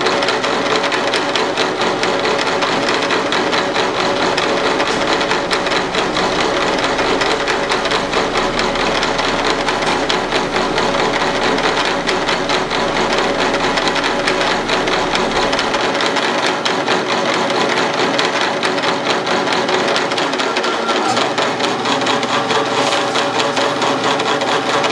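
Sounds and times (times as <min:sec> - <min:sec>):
low hum: 0:00.0 - 0:16.3
milling machine spindle whirring: 0:00.0 - 0:24.9.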